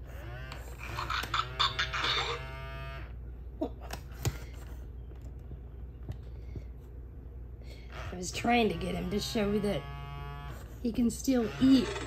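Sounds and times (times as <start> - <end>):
robotic toy animal call: 11.3 - 12.0.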